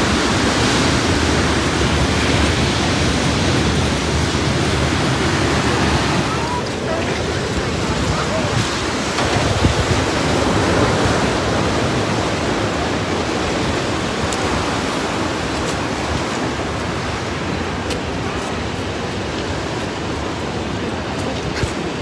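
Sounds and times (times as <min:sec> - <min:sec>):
surf breaking on rocky shore: 0:00.0 - 0:22.0.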